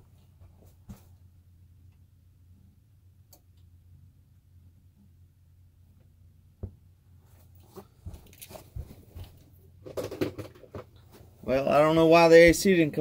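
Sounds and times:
faint low hum: 0.0 - 13.0
small knocks clicks and rustles: 7.4 - 11.3.

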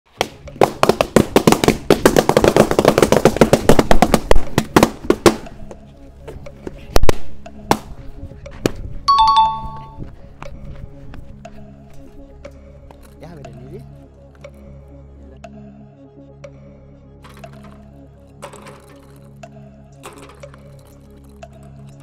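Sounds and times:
balloons bursting: 0.2 - 5.4
two-note tone: 9.1 - 10.0.

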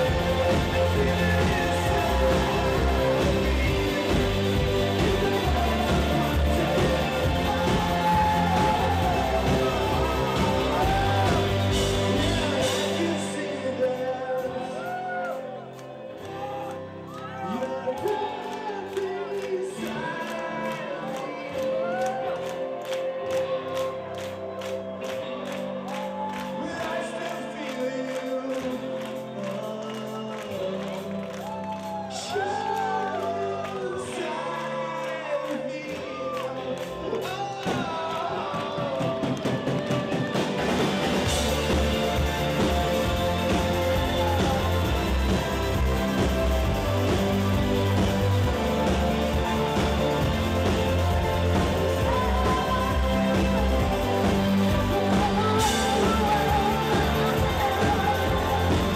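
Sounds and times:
steady drum beat: 0.0 - 13.4, 38.6 - 58.9
live band playing: 0.0 - 58.9
person singing: 0.0 - 58.9.

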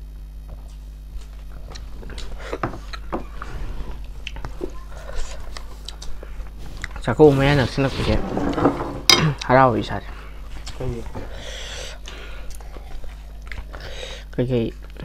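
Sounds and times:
chewing and biting: 5.1 - 6.2, 12.5 - 13.8.

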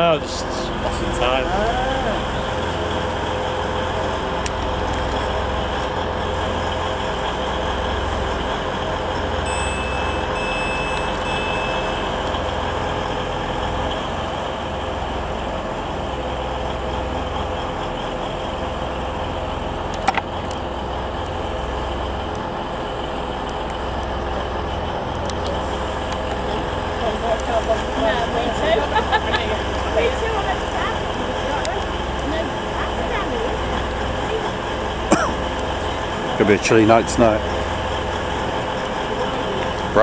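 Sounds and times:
diesel train idling hum: 0.0 - 40.0
short high beeps: 9.4 - 12.3.

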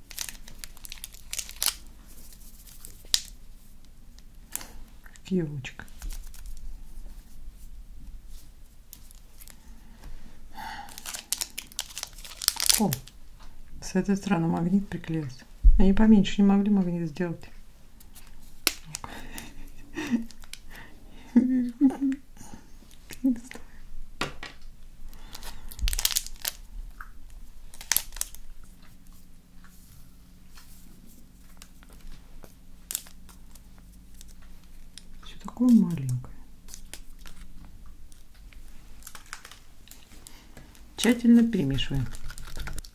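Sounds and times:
foil sachet rustling: 0.0 - 7.0, 8.3 - 9.7, 10.7 - 13.2, 18.1 - 20.8, 25.1 - 26.7, 27.4 - 28.8, 31.4 - 42.9
faint low hum: 0.0 - 42.9
scissors snipping foil: 10.9 - 13.0.

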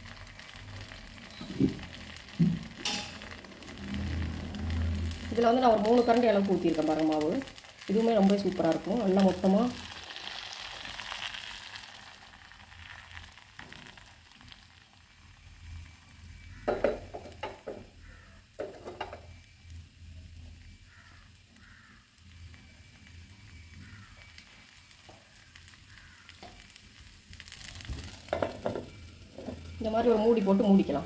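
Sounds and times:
batter sizzling in a pan: 0.0 - 31.0.

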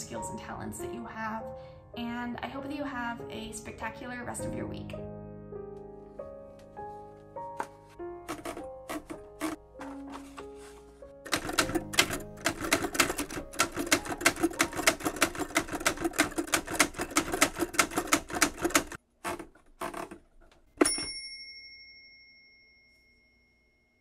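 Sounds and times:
typewriter key strikes: 8.3 - 10.1, 11.3 - 19.0
typewriter bell ding: 11.3 - 19.0, 20.8 - 23.7.

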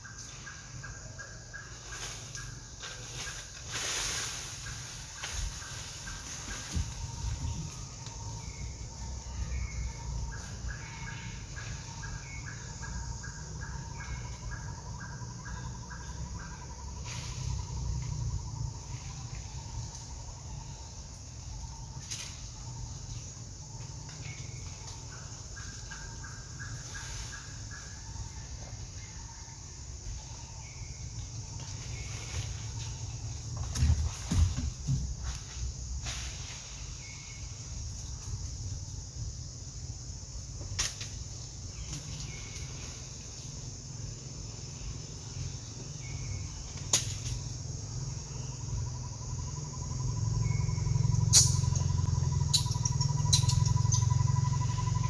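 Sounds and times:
steady high hiss: 0.0 - 14.6
bird chirping quickly: 49.6 - 55.0.

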